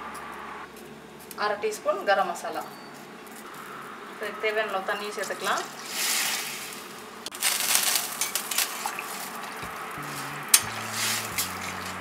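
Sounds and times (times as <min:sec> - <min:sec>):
low background music: 0:09.6 - 0:12.0.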